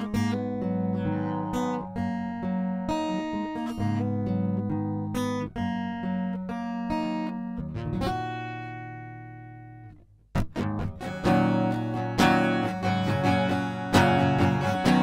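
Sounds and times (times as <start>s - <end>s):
guitar chord ringing: 0.0s - 10.0s
acoustic guitar picking and strumming: 0.0s - 15.0s.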